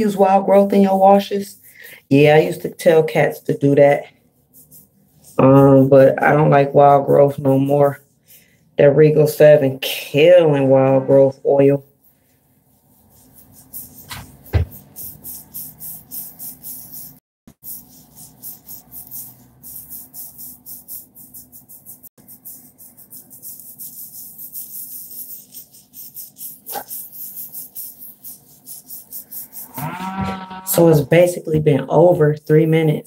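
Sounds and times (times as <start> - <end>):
fingers rubbing wet hair: 0.0 - 8.2, 8.8 - 31.4.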